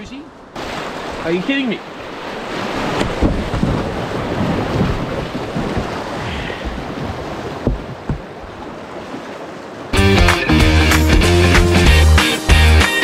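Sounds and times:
whitewater rushing and splashing: 0:00.0 - 0:13.0
dull knocks: 0:07.5 - 0:08.5.

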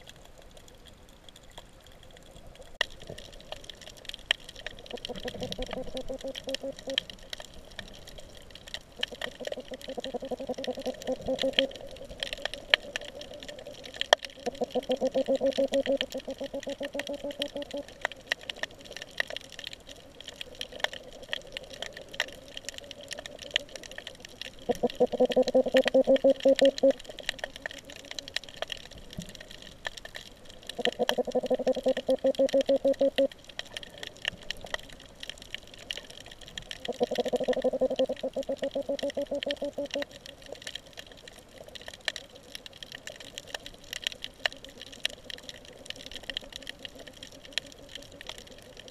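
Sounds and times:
crackle of sharp clicks: 0:00.0 - 0:48.9
fish grunting underwater: 0:04.6 - 0:07.6, 0:09.0 - 0:19.8, 0:21.3 - 0:28.9, 0:29.5 - 0:34.3, 0:36.6 - 0:40.8.

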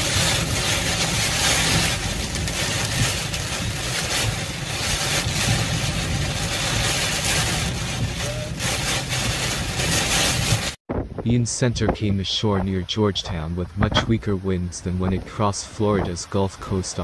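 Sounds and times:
rain hitting windshield: 0:00.0 - 0:10.8
car engine and road noise: 0:00.0 - 0:17.0.

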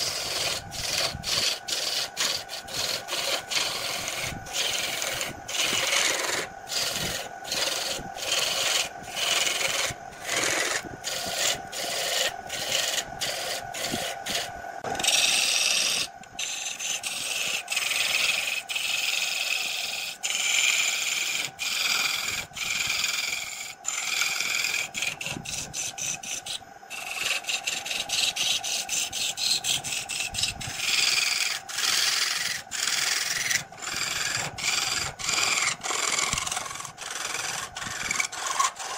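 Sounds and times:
gouge scraping wood on lathe: 0:00.0 - 0:38.9.

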